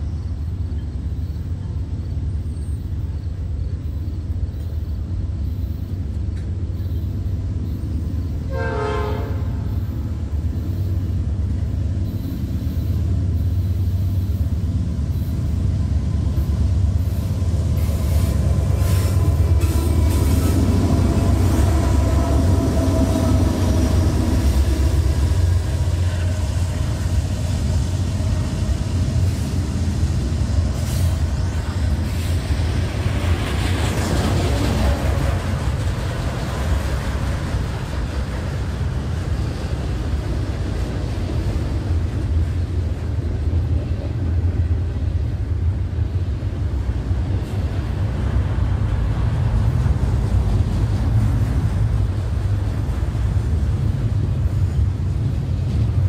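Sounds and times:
train wheels rumbling on rail: 0:00.0 - 0:56.0
train horn blast: 0:08.5 - 0:09.8.

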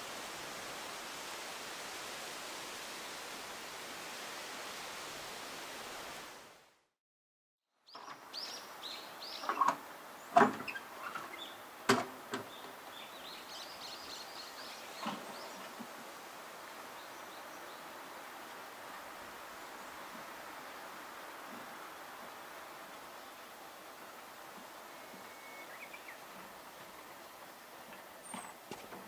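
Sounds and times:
steady hiss: 0:00.0 - 0:06.7, 0:07.9 - 0:29.0
small birds chirping: 0:07.9 - 0:11.7, 0:12.3 - 0:15.8, 0:24.7 - 0:28.8.

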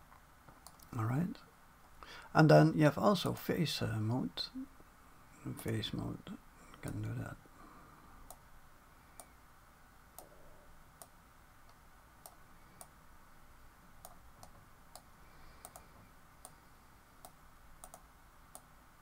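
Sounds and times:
low room hum: 0:00.0 - 0:19.0
computer mouse clicking: 0:14.0 - 0:16.6, 0:17.2 - 0:18.7.

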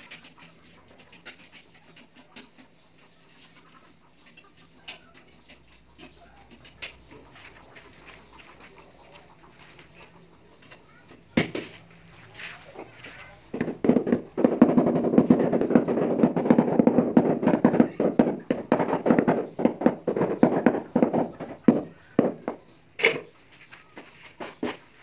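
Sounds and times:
grit scraping on tile floor: 0:11.7 - 0:21.7.

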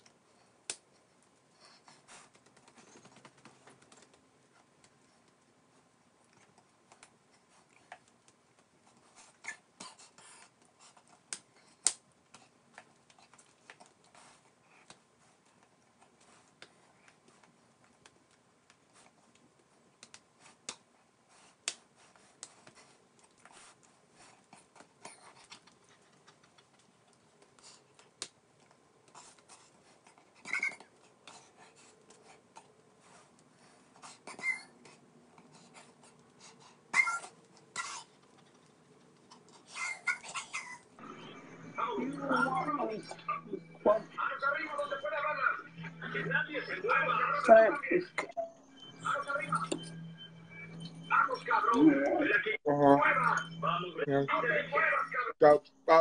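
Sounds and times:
faint irregular clicks and taps: 0:02.2 - 0:05.5, 0:14.8 - 0:20.9.

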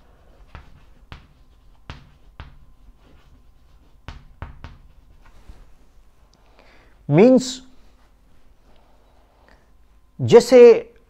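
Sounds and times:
chalk tapping on blackboard: 0:00.3 - 0:05.4.

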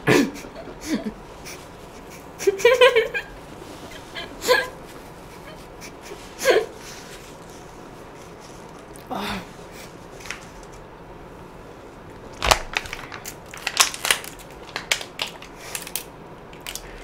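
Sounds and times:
crackles of jelly being eaten: 0:08.7 - 0:09.1, 0:12.4 - 0:17.0.

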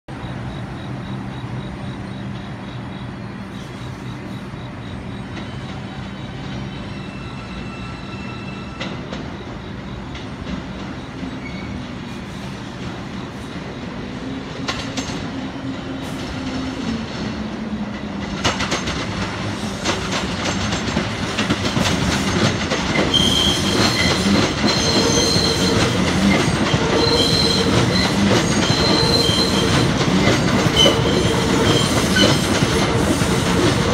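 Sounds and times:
subway train pulling in: 0:00.1 - 0:33.9
high wheel squeal: 0:03.4 - 0:09.9, 0:10.9 - 0:13.5, 0:23.0 - 0:33.9.

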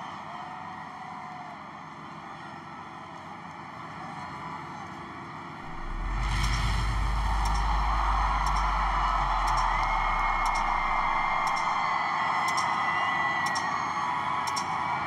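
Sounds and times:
deep rumble: 0:05.6 - 0:12.0
crowd voices: 0:05.6 - 0:15.0.

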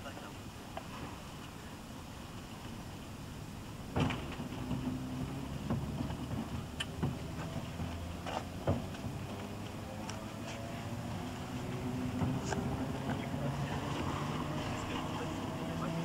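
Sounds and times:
train low hum: 0:00.0 - 0:16.0
whine rising in pitch: 0:08.9 - 0:16.0.

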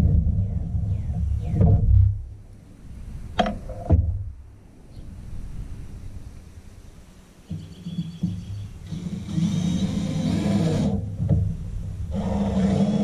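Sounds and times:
cordless drill driving screws: 0:08.8 - 0:11.0.

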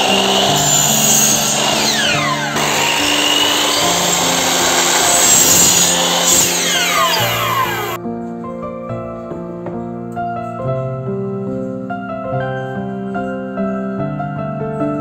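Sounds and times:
miter saw cutting wood: 0:00.0 - 0:08.0.

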